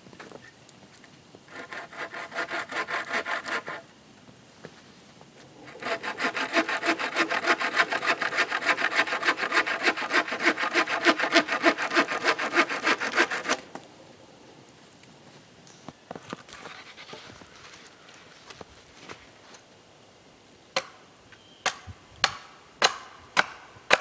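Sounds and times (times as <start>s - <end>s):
bow saw cutting through log: 1.5s - 3.8s, 5.6s - 13.6s.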